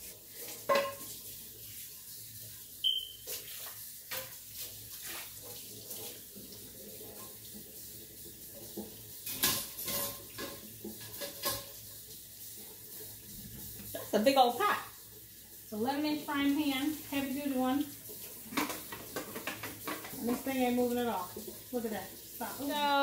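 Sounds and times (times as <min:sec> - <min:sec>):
faucet running into sink: 0:00.0 - 0:23.0
dishes and pans clattering: 0:00.5 - 0:01.2, 0:08.6 - 0:11.9, 0:18.4 - 0:20.6.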